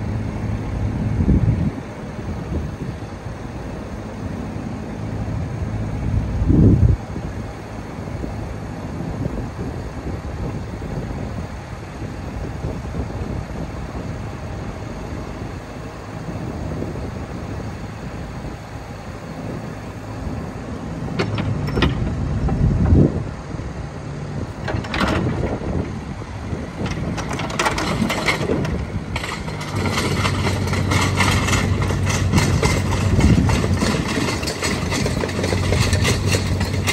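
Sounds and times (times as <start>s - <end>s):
diesel engine running: 0.0s - 36.9s
metal clanks: 21.2s - 22.2s, 26.8s - 36.9s
tracks clattering: 26.8s - 36.9s.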